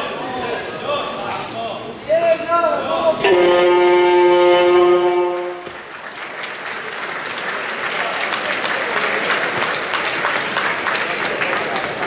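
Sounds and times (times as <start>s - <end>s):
timekeeper's horn: 3.2s - 5.7s
crowd applause and cheering: 4.9s - 12.0s.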